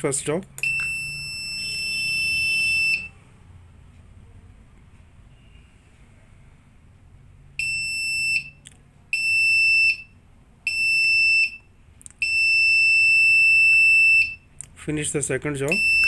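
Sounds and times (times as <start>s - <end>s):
stopwatch timer beeps: 0.6s - 3.1s, 7.6s - 8.6s, 10.7s - 11.6s, 12.2s - 14.4s, 15.7s - 16.0s.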